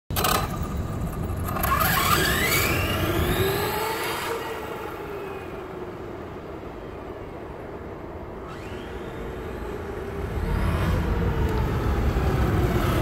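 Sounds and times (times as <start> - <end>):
rc truck motor whining: 0.1 - 6.1, 8.4 - 13.0.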